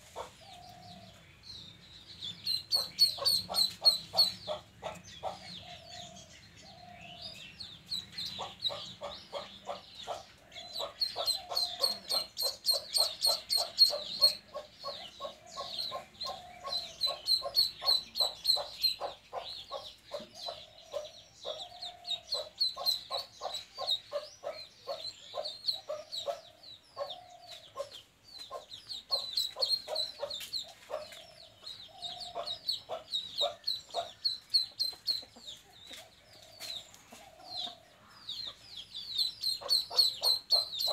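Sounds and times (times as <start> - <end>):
bird clucking: 2.3 - 7.3, 8.1 - 40.9
duckling peeping shrilly: 2.4 - 5.4, 10.8 - 20.6, 21.4 - 26.4, 28.5 - 30.4, 39.1 - 40.9.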